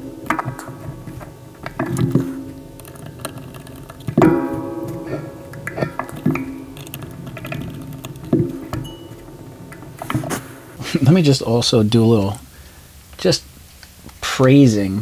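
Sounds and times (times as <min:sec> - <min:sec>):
slow plucked guitar: 0:00.0 - 0:11.0.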